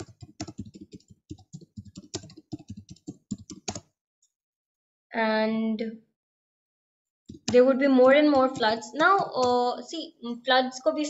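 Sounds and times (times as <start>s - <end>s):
typing on computer keyboard: 0.0s - 3.9s, 7.3s - 9.7s.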